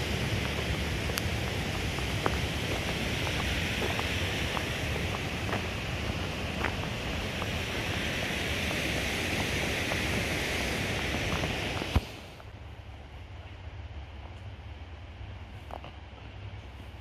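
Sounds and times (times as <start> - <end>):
waterfall rushing: 0.0 - 12.3.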